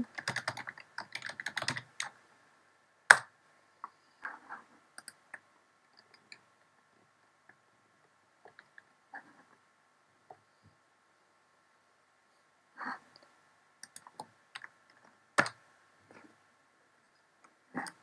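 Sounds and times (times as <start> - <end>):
rapid keyboard typing: 0.0 - 2.2, 13.8 - 14.8, 15.4 - 15.6
faint clicks: 13.1 - 15.6.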